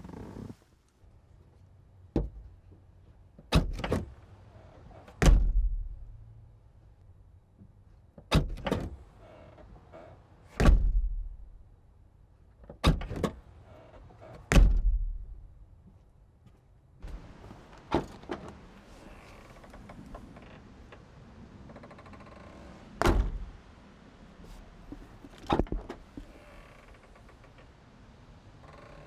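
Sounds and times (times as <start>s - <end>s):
car hatch slamming shut: 5.2s - 5.8s, 10.6s - 11.1s, 23.0s - 23.5s.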